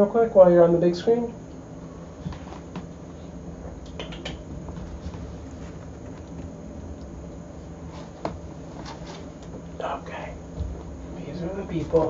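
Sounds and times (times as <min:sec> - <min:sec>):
low room hum: 0:00.0 - 0:12.0
knocks and rustles of movement: 0:07.8 - 0:09.7.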